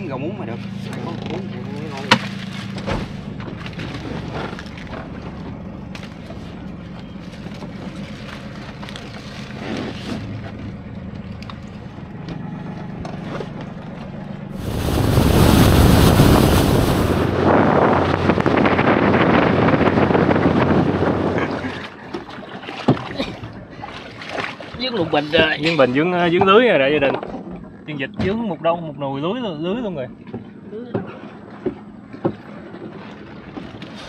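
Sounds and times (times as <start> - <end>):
boat engine humming: 0.0 - 34.0
loud rushing noise: 14.6 - 18.8.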